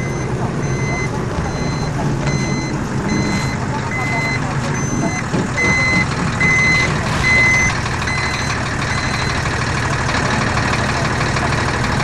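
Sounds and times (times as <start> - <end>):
high electronic beep: 0.0 - 9.4
jet engines rumbling in cabin: 0.0 - 12.0.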